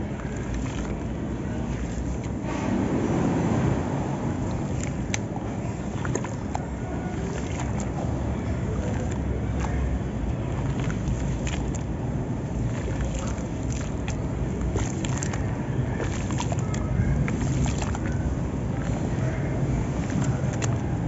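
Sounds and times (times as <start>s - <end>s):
hands sloshing in muddy water: 0.0s - 21.0s
low steady rumble: 0.0s - 21.0s.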